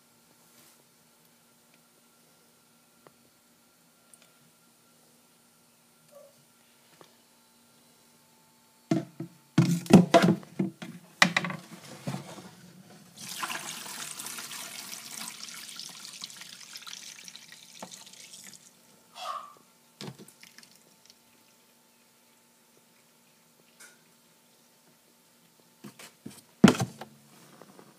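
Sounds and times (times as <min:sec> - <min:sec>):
plastic basin clattering on bathtub: 0:08.9 - 0:12.4
water pouring and splashing into tub: 0:13.2 - 0:18.7, 0:20.2 - 0:21.5.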